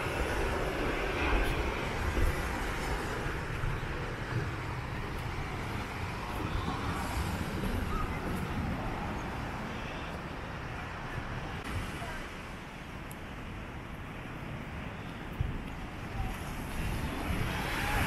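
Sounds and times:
wind buffeting microphone: 0.0 - 18.0
surf washing onto beach: 10.5 - 18.0.

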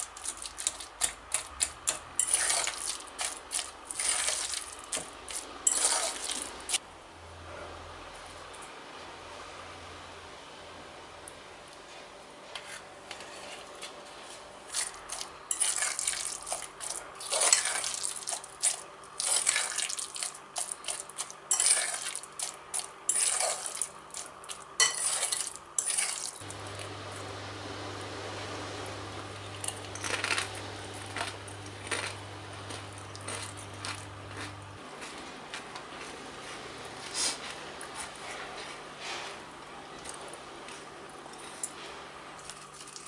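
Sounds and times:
fork scraping glass bowl: 1.9 - 4.6, 5.3 - 6.5, 12.6 - 13.7, 14.7 - 18.0, 20.8 - 22.5, 23.1 - 23.9, 24.8 - 26.3
steady low hum: 26.4 - 42.5.

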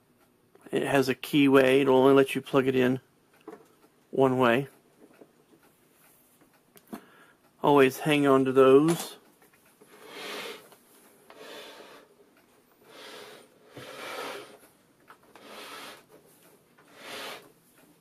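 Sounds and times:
wooden cabinet scraping on workbench: 12.9 - 14.6, 16.9 - 17.4.

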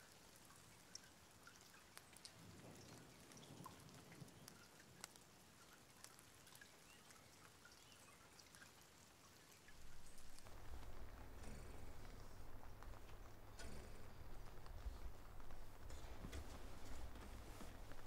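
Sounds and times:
small clicks: 9.7 - 18.0.

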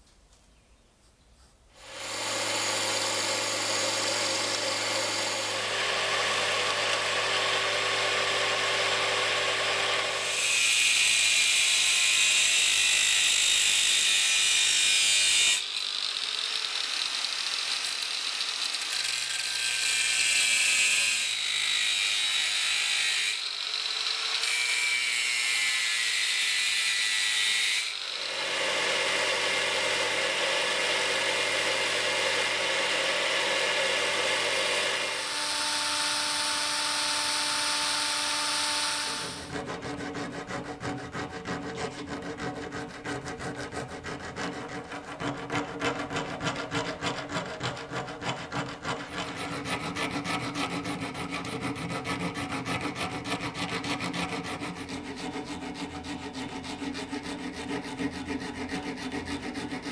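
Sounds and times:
bench grinder motor hum: 1.8 - 24.7, 26.9 - 42.1
angle grinder cutting: 1.8 - 59.9
belt grinder grinding metal: 1.8 - 59.9.

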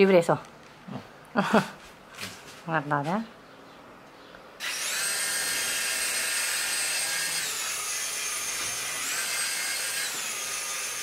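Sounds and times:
toy propellers whining: 4.6 - 11.0.

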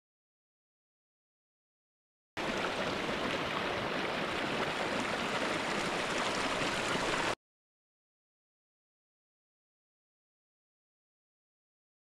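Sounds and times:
stream running over rocks: 2.4 - 7.4.

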